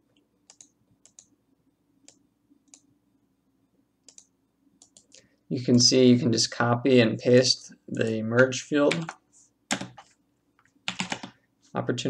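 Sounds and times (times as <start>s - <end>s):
computer mouse clicking: 0.1s - 1.3s, 2.0s - 2.9s, 4.0s - 5.2s.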